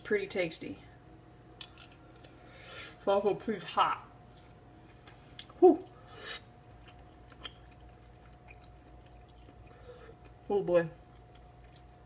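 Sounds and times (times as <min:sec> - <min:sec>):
faint steady hum: 0:00.0 - 0:12.0
person chewing: 0:04.9 - 0:12.0.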